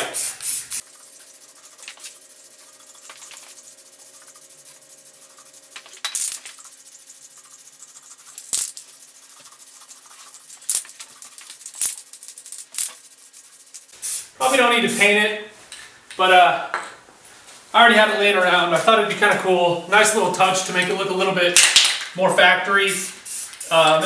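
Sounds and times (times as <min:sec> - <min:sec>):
spray paint can hissing: 0:00.0 - 0:14.6, 0:23.0 - 0:24.0.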